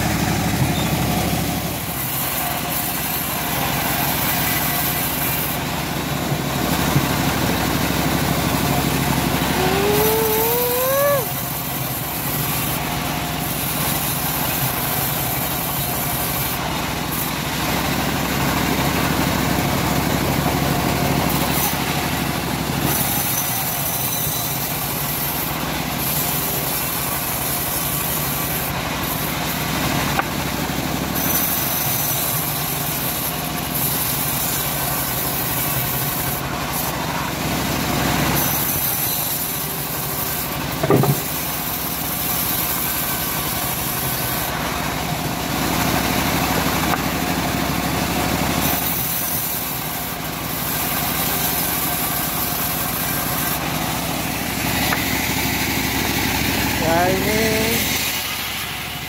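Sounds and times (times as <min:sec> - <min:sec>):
bandsaw cutting log: 0:00.0 - 0:59.0
knock: 0:40.8 - 0:41.3.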